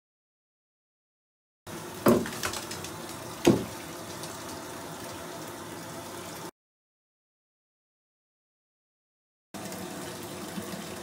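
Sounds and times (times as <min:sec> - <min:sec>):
water rushing in bathtub: 0:01.7 - 0:06.5, 0:09.6 - 0:11.0
bath bombs splashing into water: 0:02.0 - 0:03.9.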